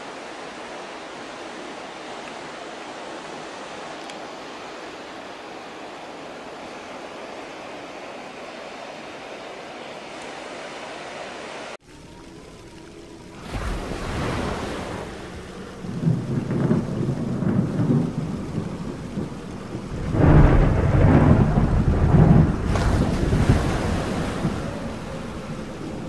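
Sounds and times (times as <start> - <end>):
rain hissing: 0.0 - 26.0
thunder rolling: 13.3 - 26.0
thunder crack: 13.5 - 26.0.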